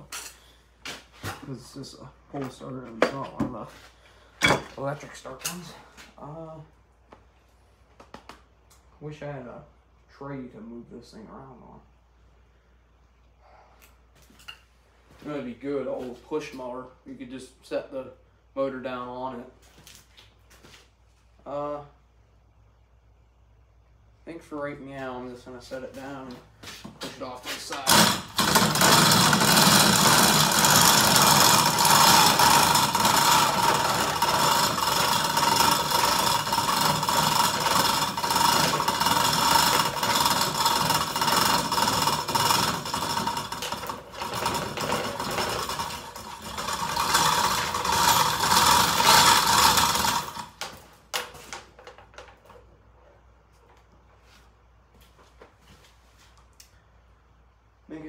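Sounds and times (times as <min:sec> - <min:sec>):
chain hoist rattling and clicking: 0:27.8 - 0:51.3.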